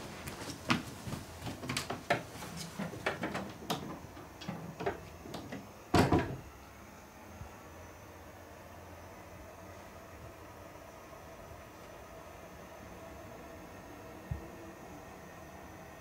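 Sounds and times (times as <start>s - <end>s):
faint steady hiss: 0.0s - 16.0s
irregular knocks and clicks: 0.7s - 6.4s.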